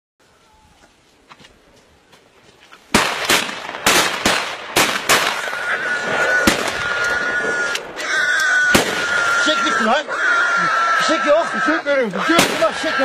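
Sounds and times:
gunshots: 2.9 - 8.0, 8.6 - 9.8, 12.2 - 13.0.

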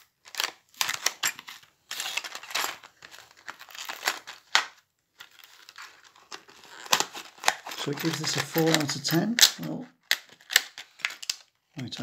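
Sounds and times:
plastic crackling and crinkling: 0.0 - 12.0
scissors cutting plastic: 5.6 - 11.4.

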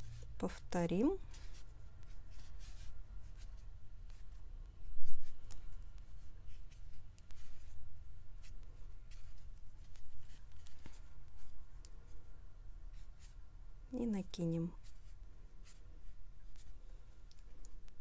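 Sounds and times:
marker drawing on paper: 0.1 - 12.2, 12.9 - 13.4, 14.7 - 16.9.

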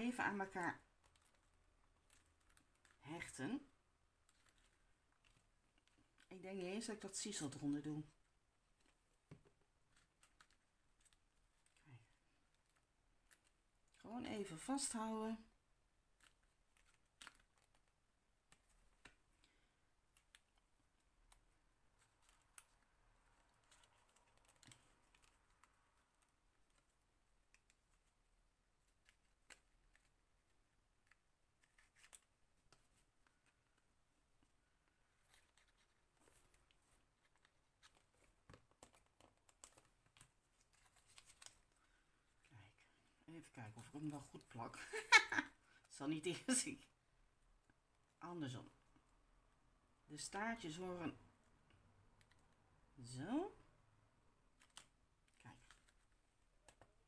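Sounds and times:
paper handling clicks and rustles: 0.8 - 3.4, 4.1 - 7.9, 8.7 - 15.0, 16.0 - 42.0, 54.5 - 57.0.

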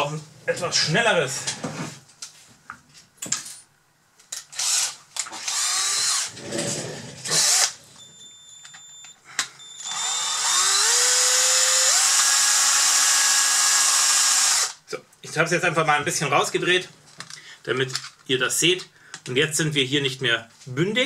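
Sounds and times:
cordless drill running: 4.5 - 6.3, 7.3 - 7.8, 9.8 - 14.8.

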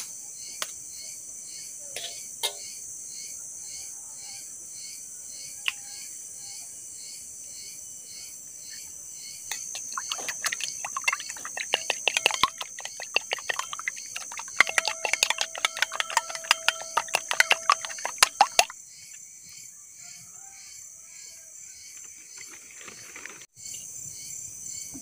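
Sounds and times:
high insect chirring: 9.2 - 19.2
metal spoon beating eggs in bowl: 9.5 - 18.7.

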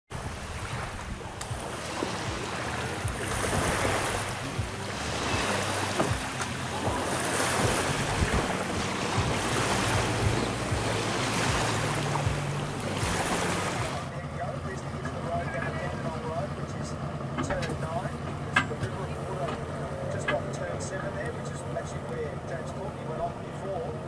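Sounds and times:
wind on microphone: 0.1 - 14.0
outboard motor humming: 0.1 - 24.0
small waves lapping: 0.1 - 24.0.

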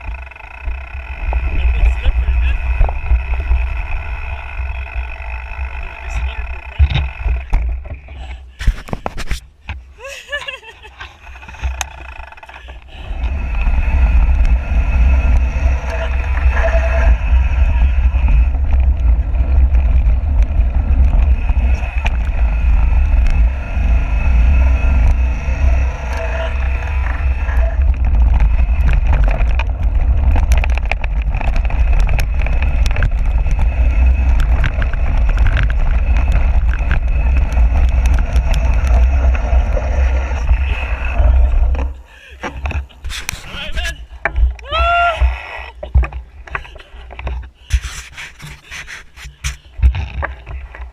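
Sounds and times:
tyres rolling over dirt: 0.0 - 9.2, 10.4 - 48.7
bike rattling and knocking: 0.0 - 9.9, 10.6 - 50.9
wind buffeting microphone: 12.9 - 47.9.

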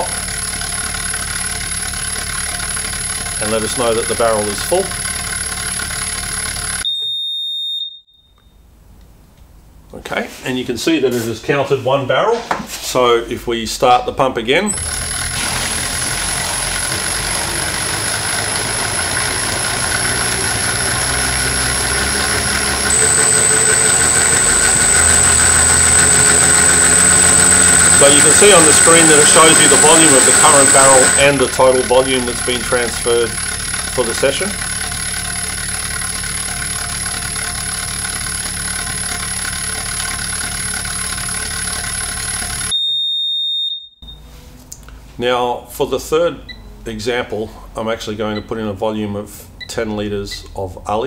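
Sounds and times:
water pump motor humming: 0.0 - 6.8, 14.7 - 42.7.

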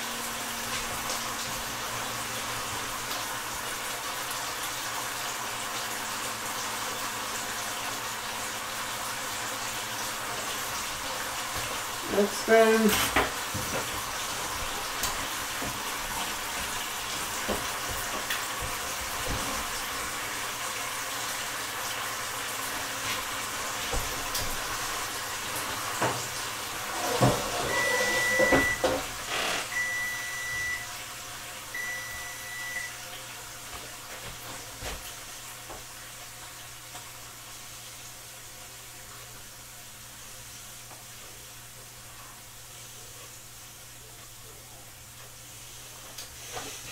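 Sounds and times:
electronic beeps: 27.7 - 28.8.

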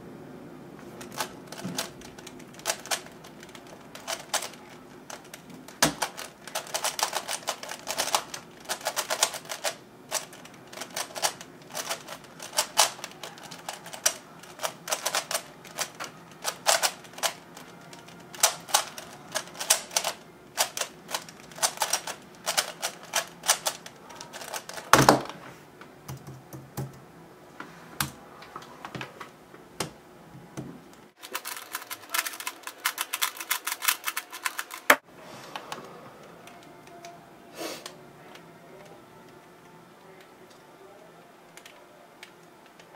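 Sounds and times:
speed cube turning clicks: 1.0 - 24.9, 31.2 - 35.0.

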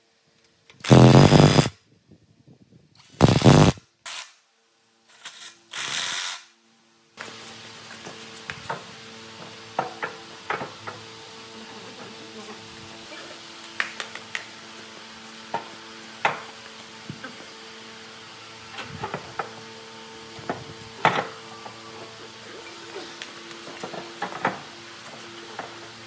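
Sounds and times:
steady hum: 0.8 - 1.8, 3.2 - 3.8.

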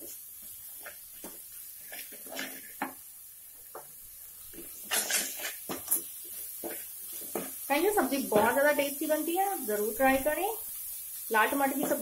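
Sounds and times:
wooden spatula scraping metal pan: 1.8 - 2.9, 4.8 - 7.6.

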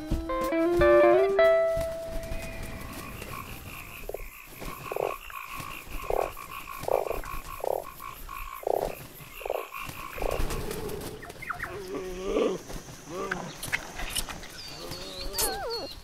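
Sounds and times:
frog croaking: 2.8 - 10.4.

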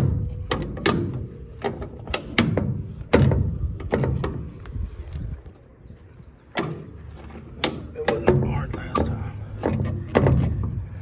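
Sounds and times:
irregular clunks and knocks: 6.5 - 11.0.

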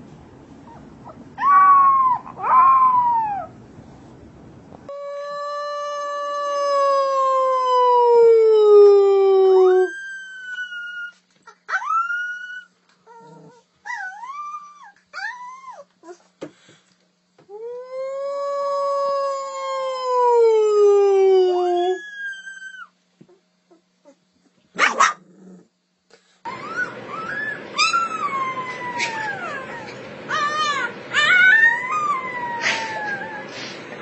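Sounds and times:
puppy howling: 1.4 - 3.6, 4.9 - 15.8, 17.6 - 23.0, 26.5 - 33.6
puppy whimpers and yips: 9.7 - 16.2, 21.6 - 22.9, 26.5 - 33.6.

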